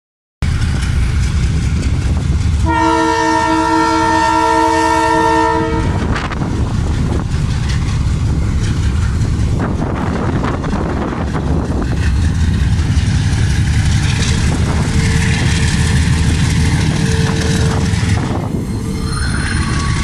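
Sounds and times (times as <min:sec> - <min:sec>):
diesel locomotive engine rumbling: 0:00.4 - 0:20.0
train air horn chord: 0:02.6 - 0:06.2.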